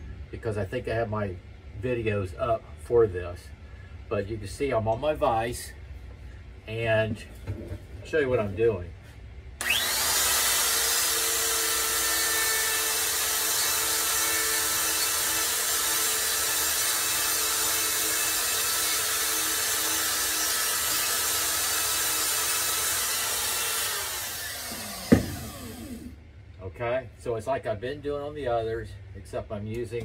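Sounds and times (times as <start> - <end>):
sharp knock: 25.0 - 25.4.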